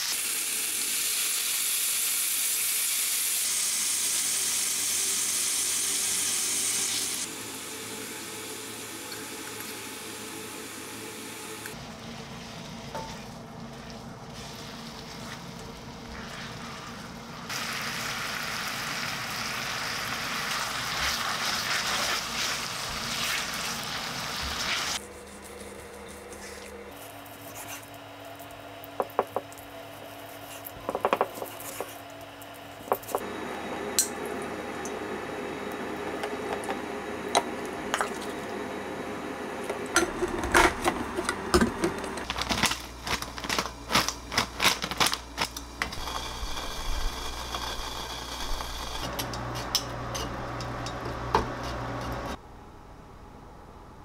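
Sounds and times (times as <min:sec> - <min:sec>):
chicken sizzling in frying pan: 0:00.0 - 0:11.7, 0:17.5 - 0:25.0.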